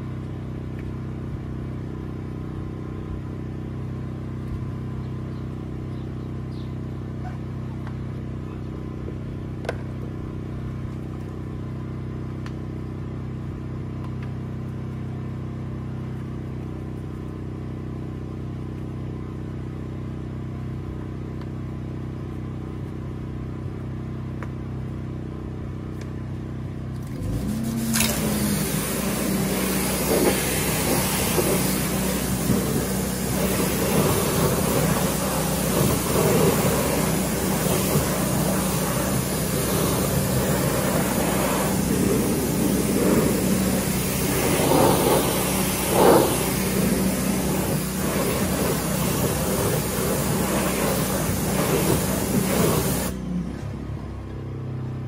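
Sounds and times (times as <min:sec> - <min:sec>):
motor humming: 0:27.1 - 0:53.2
pressure washer spraying water: 0:27.2 - 0:53.2.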